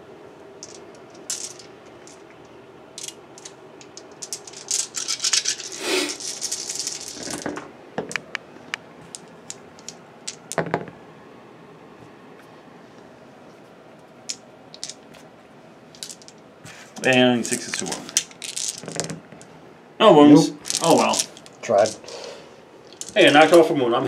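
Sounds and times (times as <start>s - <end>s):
dice clicking: 0.6s - 2.3s, 3.0s - 10.9s, 14.3s - 15.2s, 16.0s - 16.4s, 17.0s - 19.5s, 20.6s - 22.0s, 22.9s - 23.4s
dice rattling in hands: 0.6s - 2.3s, 3.0s - 8.3s, 9.1s - 10.9s, 14.3s - 15.2s, 15.9s - 16.4s, 17.0s - 19.5s, 20.6s - 22.1s, 22.8s - 23.6s.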